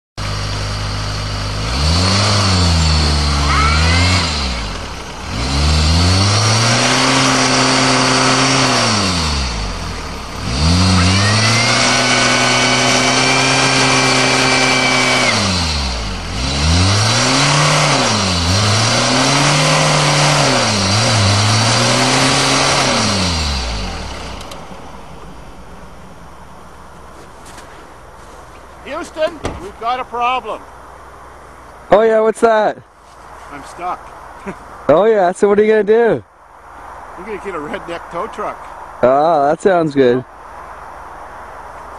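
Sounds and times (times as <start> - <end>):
car engine revving: 0.2 - 31.0
high whine: 0.2 - 31.6.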